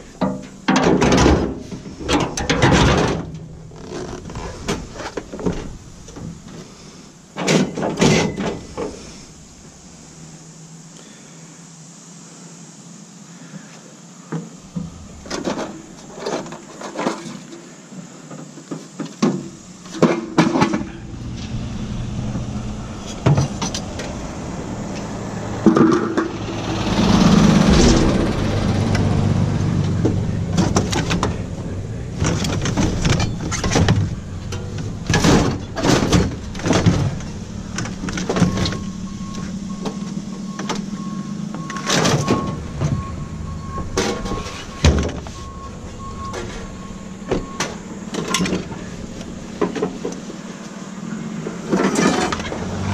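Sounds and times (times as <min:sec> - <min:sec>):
vehicle engine running: 0:14.6 - 0:16.5, 0:19.6 - 0:52.9.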